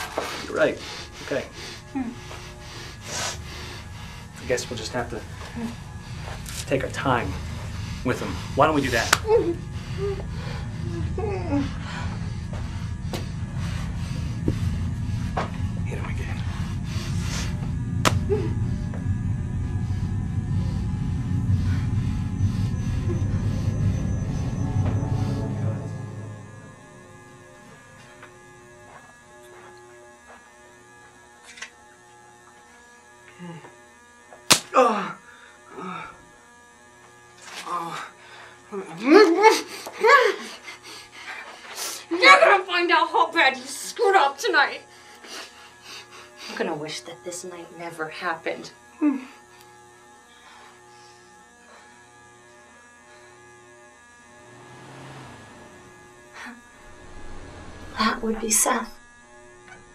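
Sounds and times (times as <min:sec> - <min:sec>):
low electrical hum: 0:00.0 - 0:34.1, 0:53.8 - 0:59.9
sharp hit: 0:21.6 - 0:28.5, 0:54.5 - 0:59.9
groan: 0:34.7 - 0:36.2.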